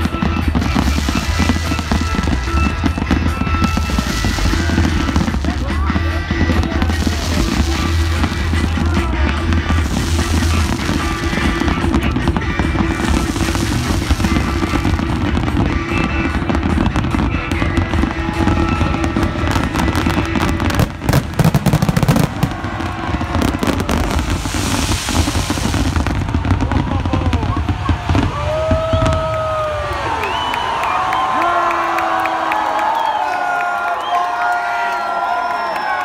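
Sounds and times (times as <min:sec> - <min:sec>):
loud show music: 0:00.0 - 0:28.3
fireworks bangs and crackling: 0:00.0 - 0:31.4
crowd cheering: 0:00.0 - 0:36.0.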